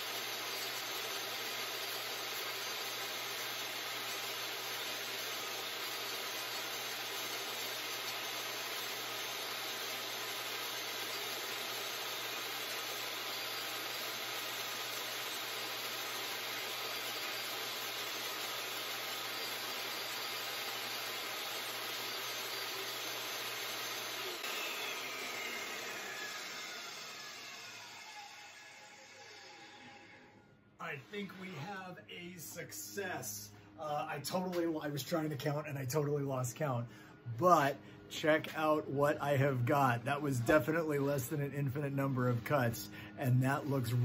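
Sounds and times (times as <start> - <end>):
table saw cutting plywood: 0.0 - 30.2.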